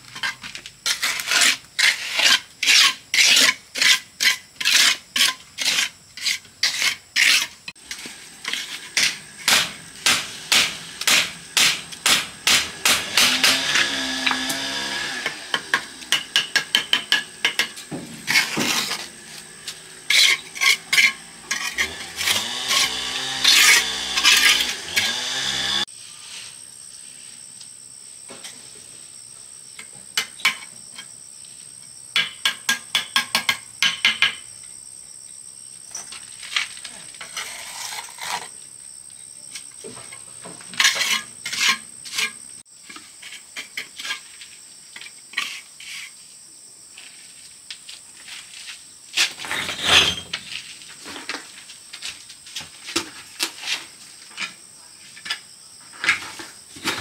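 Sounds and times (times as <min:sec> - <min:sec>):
trowel scraping and tapping bricks: 0:00.0 - 0:14.6, 0:15.2 - 0:25.1, 0:37.1 - 0:38.6, 0:39.9 - 0:46.2.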